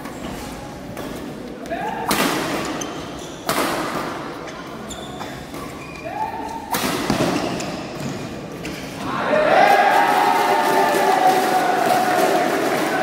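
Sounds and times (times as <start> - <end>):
short squeak: 4.5 - 6.6.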